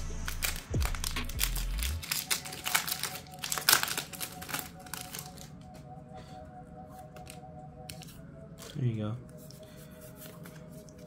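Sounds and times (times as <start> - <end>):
foil wrapper crinkling: 0.1 - 5.6.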